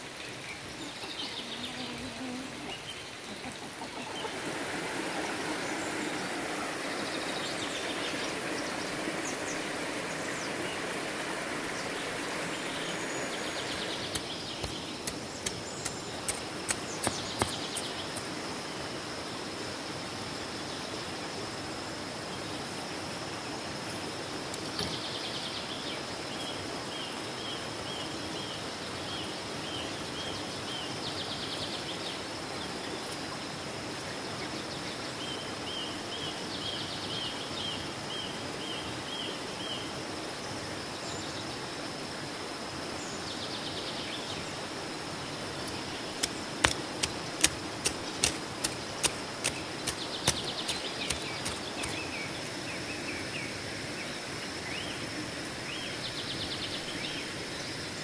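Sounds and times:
outdoor hiss: 0.0s - 58.0s
hoe chopping into soil: 13.8s - 17.9s, 45.7s - 52.0s.

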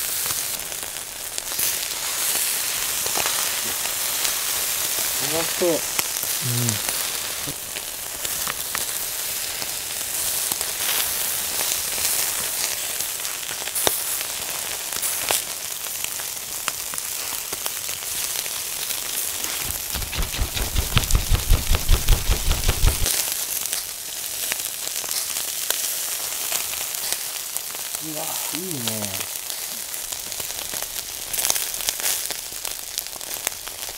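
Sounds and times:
chicken skin sizzling on grill: 0.0s - 21.6s, 22.5s - 33.9s
fat crackling and popping: 19.3s - 23.1s
low rapid thumping: 19.6s - 23.1s.

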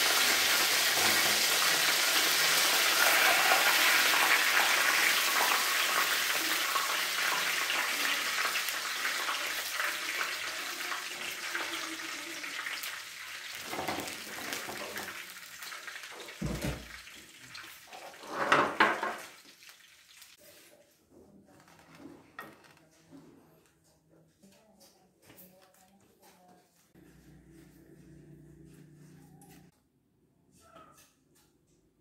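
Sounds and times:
oil sizzling in a pan: 0.0s - 20.6s.

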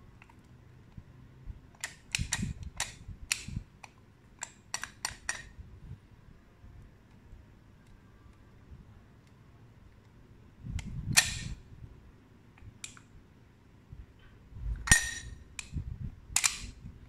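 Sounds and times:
lock box clicks and clacks: 1.8s - 5.5s, 10.8s - 11.6s, 16.4s - 16.8s.

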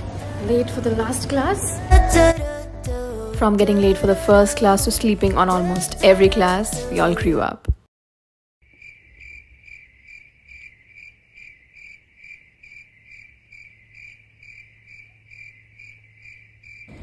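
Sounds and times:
crickets chirping: 8.6s - 17.0s.

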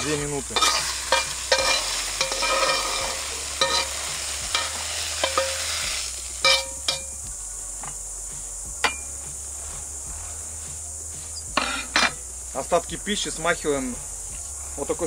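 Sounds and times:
metal spatula scraping wok: 0.0s - 7.1s, 11.6s - 12.2s
hot pan sizzling: 0.0s - 15.0s
sharp metal clanks: 0.6s - 4.0s, 4.6s - 5.7s, 6.4s - 7.2s, 8.8s - 9.1s, 11.6s - 12.2s.

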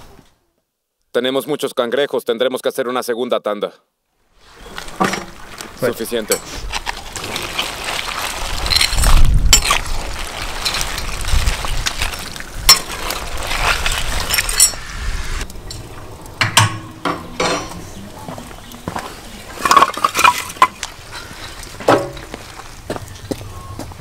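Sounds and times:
crayfish shells clicking: 6.7s - 14.5s
steady hiss: 12.8s - 19.8s.

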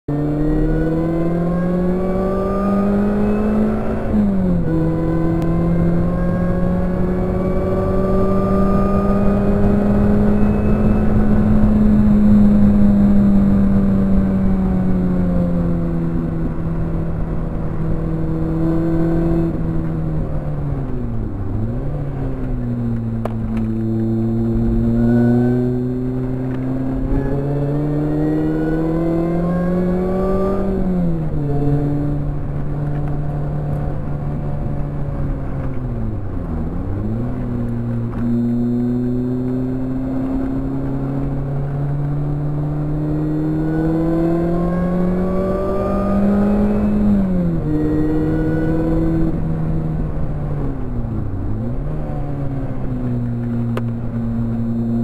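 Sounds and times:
car engine revving: 0.1s - 55.0s.

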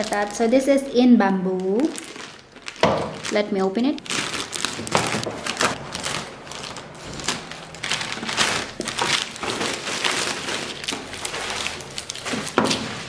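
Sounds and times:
plastic bag crinkling: 0.0s - 13.0s.

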